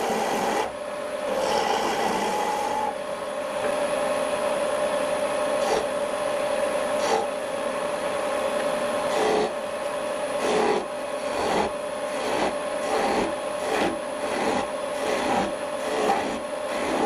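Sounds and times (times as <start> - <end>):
turning tool scraping wood: 0.0 - 3.0, 5.6 - 6.0, 6.9 - 7.3, 9.1 - 9.6, 10.3 - 17.0
wood lathe running: 0.0 - 3.0, 5.5 - 6.0, 6.6 - 7.4, 8.7 - 9.6, 10.3 - 17.0.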